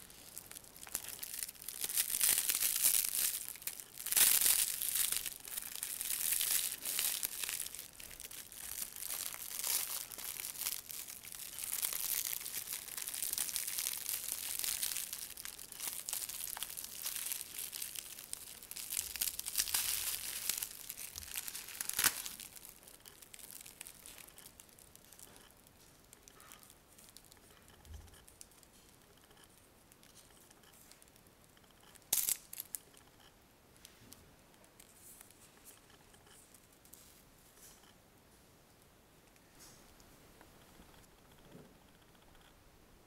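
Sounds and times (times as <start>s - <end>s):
plastic sleeve crinkling: 0.0s - 31.2s, 31.8s - 33.2s.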